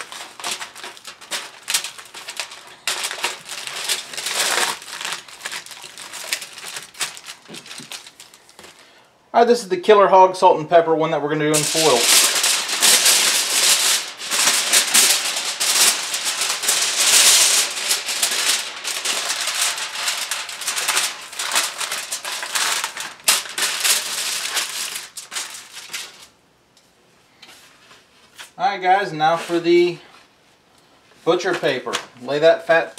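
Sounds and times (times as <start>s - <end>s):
aluminium foil crinkling: 0.0s - 9.0s, 11.5s - 26.4s.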